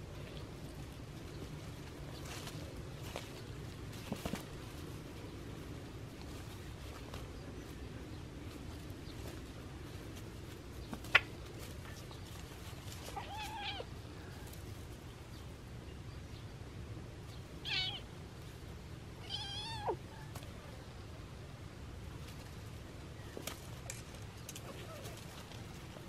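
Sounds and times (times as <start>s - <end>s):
kittens play-fighting: 0.0s - 15.1s, 22.1s - 26.0s.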